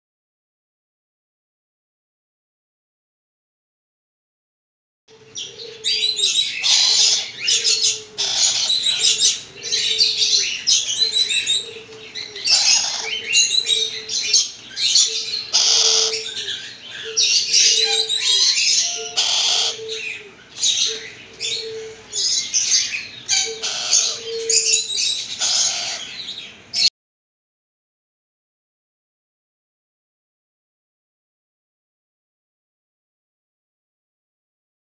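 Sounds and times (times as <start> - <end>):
parrot chick squawking: 5.4 - 26.9.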